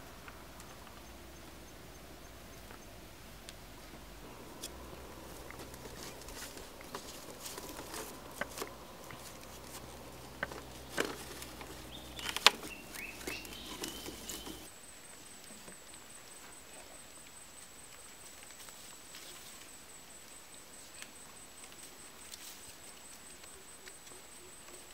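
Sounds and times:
bamboo strips clicking and knocking: 3.4s - 14.7s.

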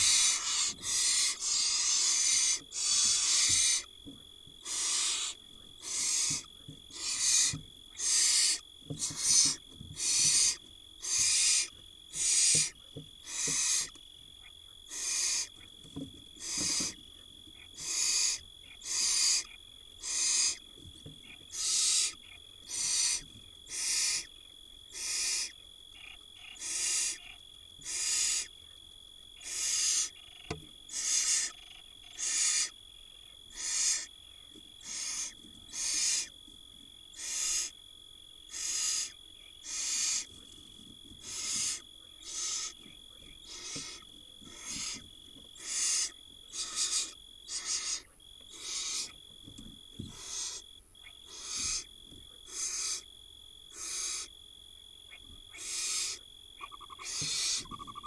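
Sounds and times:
owl nestlings hissing calls: 0.0s - 3.9s, 4.6s - 14.0s, 14.9s - 15.6s, 16.4s - 17.0s, 17.7s - 20.6s, 21.5s - 24.3s, 24.9s - 25.5s, 26.6s - 28.5s, 29.4s - 30.2s, 30.9s - 32.7s, 33.5s - 34.1s, 34.8s - 36.3s, 37.1s - 37.7s, 38.5s - 40.4s, 41.2s - 45.0s, 45.6s - 49.2s, 50.1s - 50.6s, 51.2s - 53.0s, 53.7s - 54.3s, 55.5s - 58.0s.

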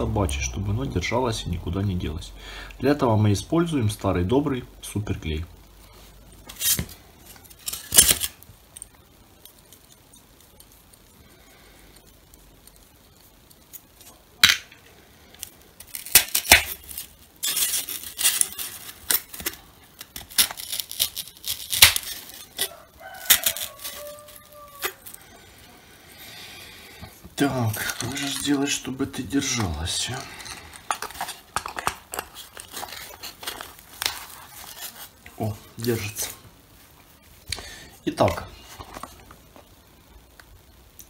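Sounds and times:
foam crackling and scratching: 5.8s - 36.9s.

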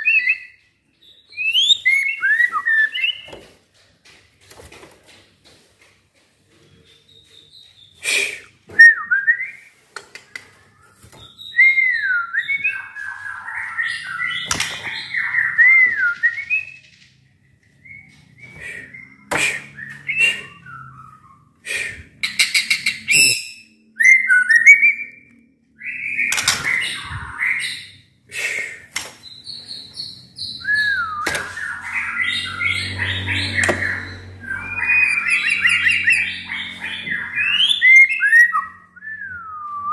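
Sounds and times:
songbird singing whistles and trills: 0.0s - 3.3s, 8.7s - 9.6s, 11.2s - 16.8s, 23.0s - 27.7s, 29.4s - 36.4s, 37.1s - 39.9s.

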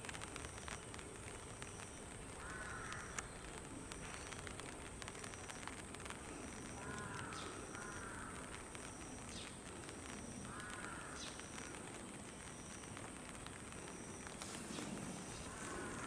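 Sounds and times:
steady background hiss: 0.0s - 16.0s
crow cawing: 2.4s - 3.3s, 6.8s - 8.5s, 10.5s - 11.4s, 15.5s - 16.0s.

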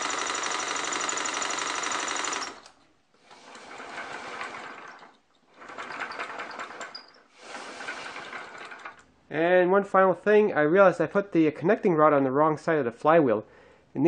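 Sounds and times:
cordless drill whining: 0.0s - 9.0s
small air engine clattering: 0.0s - 9.0s.

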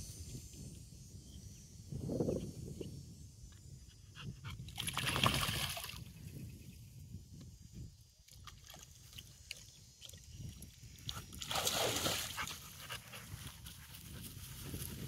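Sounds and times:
dog splashing in water: 4.8s - 6.0s, 11.4s - 12.4s.

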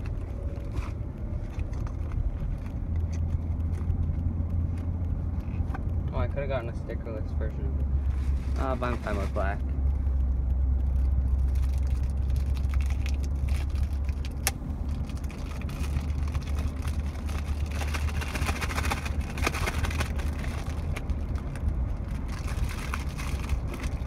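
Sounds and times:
car cabin rumble: 0.0s - 24.0s
plastic wrap crinkling: 8.1s - 24.0s.

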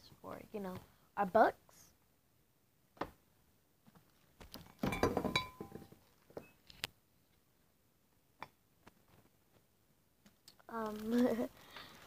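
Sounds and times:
knocks: 4.8s - 6.0s.

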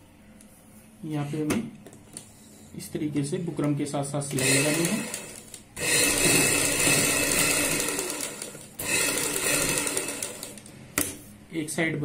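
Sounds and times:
sewing machine running: 4.3s - 10.7s.

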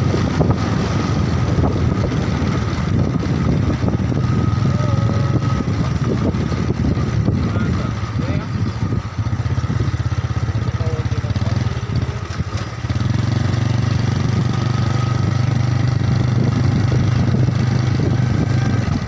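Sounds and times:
small motorcycle engine running: 0.0s - 19.0s.

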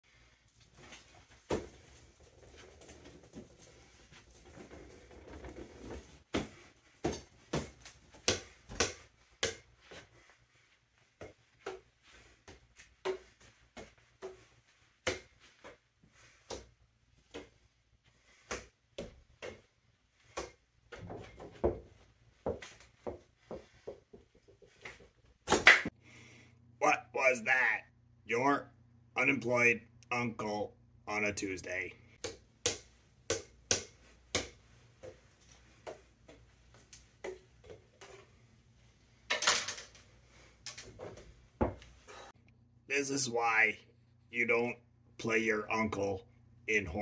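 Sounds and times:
juggling props tapping and thudding: 0.7s - 10.3s, 11.0s - 25.9s, 32.2s - 38.4s, 40.7s - 42.3s.

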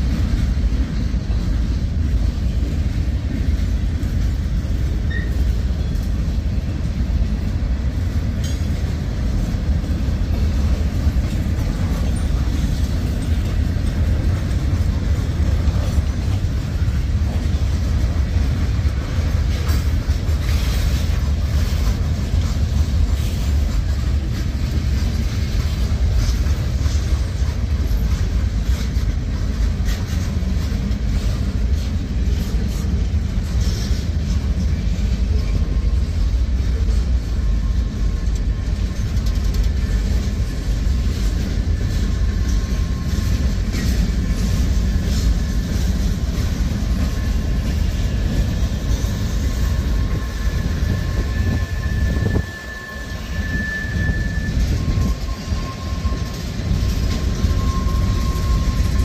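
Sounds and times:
train wheels rumbling on rail: 0.0s - 59.0s
high wheel squeal: 5.1s - 5.8s, 39.8s - 59.0s.

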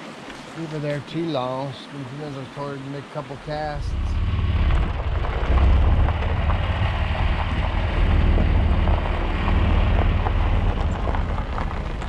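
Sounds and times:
vehicle engine and road rumble: 0.0s - 12.0s
tyres crunching over gravel: 3.7s - 12.0s
wind noise on microphone: 3.8s - 12.0s
small stones ticking: 4.6s - 12.0s.

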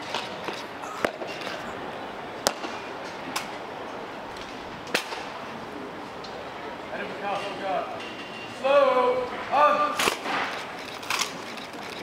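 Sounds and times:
outdoor background hiss: 0.0s - 12.0s
sharp cracks: 4.9s - 5.4s, 10.0s - 12.0s.

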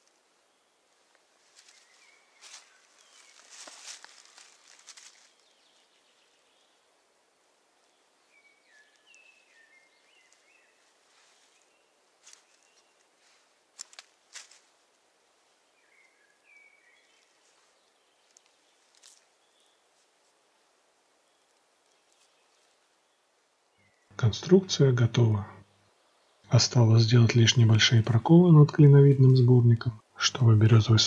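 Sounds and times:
handling clicks and rustles: 1.5s - 5.4s, 13.7s - 14.7s, 18.2s - 19.3s.

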